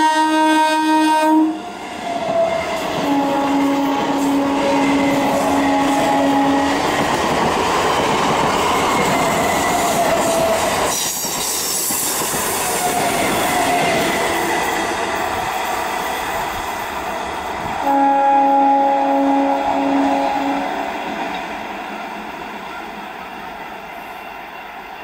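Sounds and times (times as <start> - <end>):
train horn blast: 0.0 - 1.7, 3.0 - 6.9, 17.8 - 20.9
train wheels on rail: 1.0 - 25.0.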